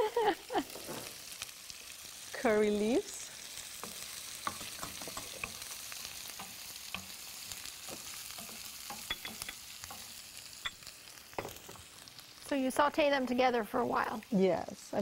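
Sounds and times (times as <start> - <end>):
food sizzling in hot oil: 0.0 - 15.0
wooden spatula tapping and scraping: 3.8 - 11.9.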